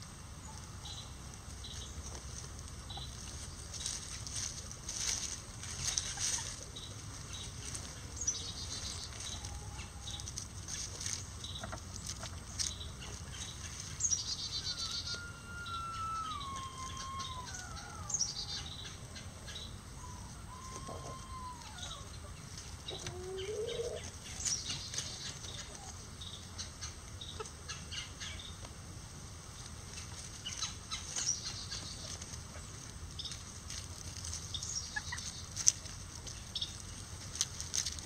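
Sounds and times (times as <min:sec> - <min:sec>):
chickens calling: 0:00.0 - 0:38.0
high bird trills: 0:13.0 - 0:22.2.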